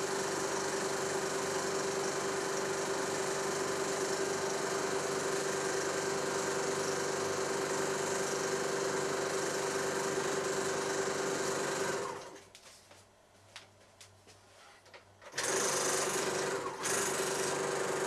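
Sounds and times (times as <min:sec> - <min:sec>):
film projector rattling: 0:15.3 - 0:18.0.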